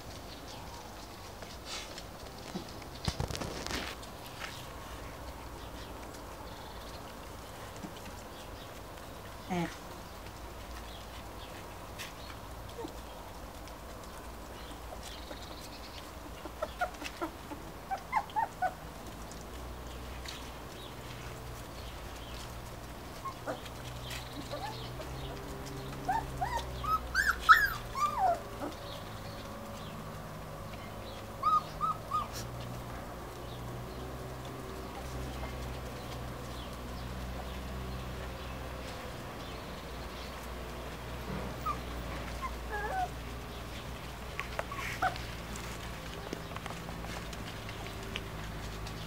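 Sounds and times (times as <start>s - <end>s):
puppies squeaking and yelping: 14.9s - 19.4s, 22.3s - 29.5s, 30.9s - 32.8s, 41.5s - 47.8s.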